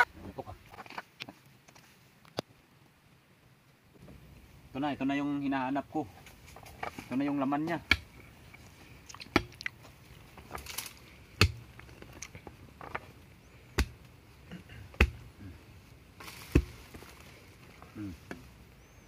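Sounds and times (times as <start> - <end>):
digging stick knocking into soil: 6.2 - 8.2, 9.2 - 13.1, 13.7 - 14.1, 14.8 - 15.4, 16.2 - 17.0.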